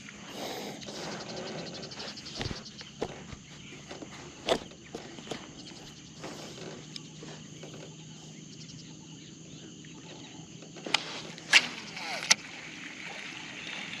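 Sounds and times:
insects chirring: 0:00.0 - 0:14.0.

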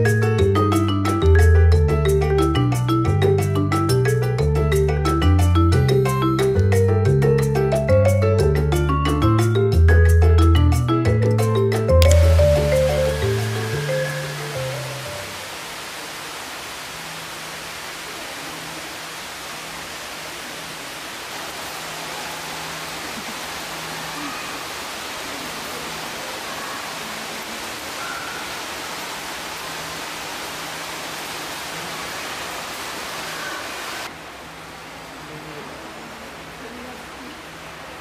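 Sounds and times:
water spraying hiss: 0:12.0 - 0:34.2.

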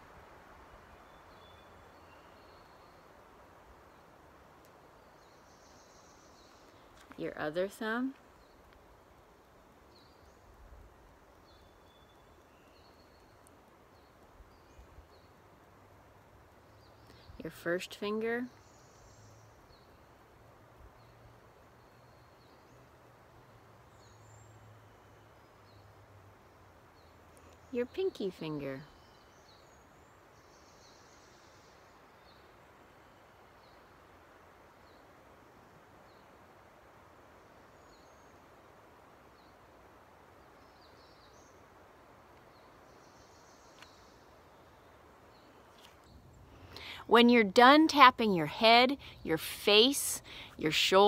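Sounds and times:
faint bird chirps: 0:01.0 - 0:03.2.

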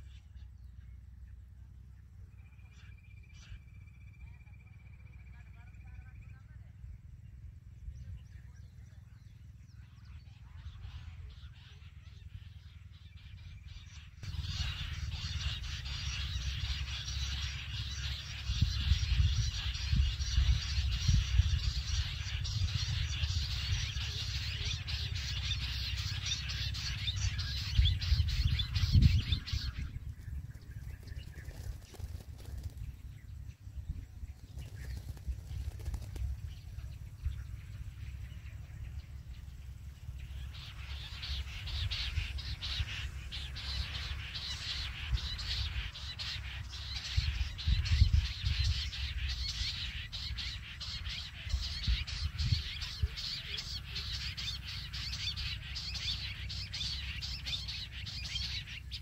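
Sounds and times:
quail calling: 0:10.5 - 0:32.8, 0:40.1 - 0:59.0.

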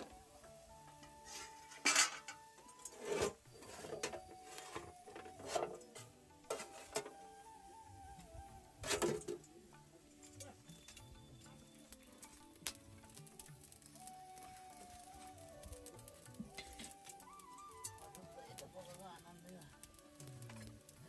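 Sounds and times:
quiet background music: 0:00.0 - 0:21.0
metal utensils scraping a pot: 0:01.2 - 0:07.2, 0:08.8 - 0:09.5, 0:19.8 - 0:21.0.

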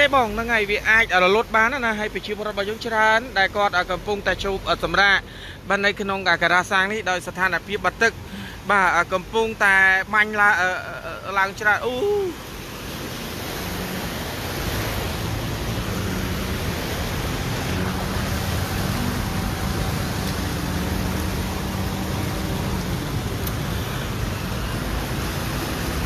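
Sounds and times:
floodwater rushing and splashing: 0:00.0 - 0:26.0
low engine hum: 0:10.8 - 0:26.0.

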